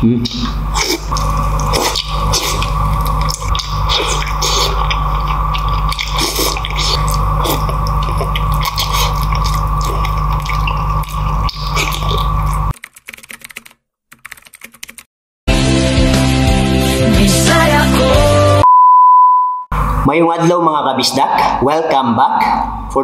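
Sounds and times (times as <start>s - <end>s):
low hum: 0.0s - 12.7s
man chewing and smacking: 0.2s - 13.7s.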